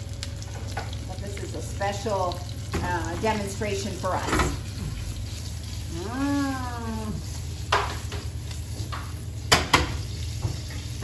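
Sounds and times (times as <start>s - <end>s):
pasta sizzling in butter: 0.0s - 11.0s
person humming: 5.9s - 7.2s
frying pan clatter: 7.7s - 11.0s.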